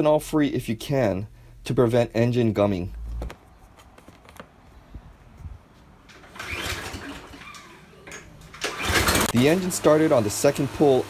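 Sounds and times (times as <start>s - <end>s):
lawn mower engine cranking: 6.0s - 11.0s.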